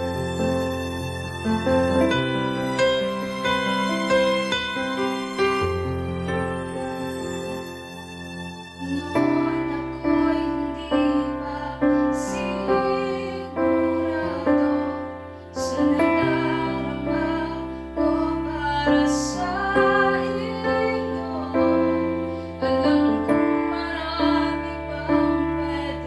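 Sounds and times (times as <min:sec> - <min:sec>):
piano chords: 0:00.0 - 0:26.0
woman singing a slow ballad: 0:08.8 - 0:26.0.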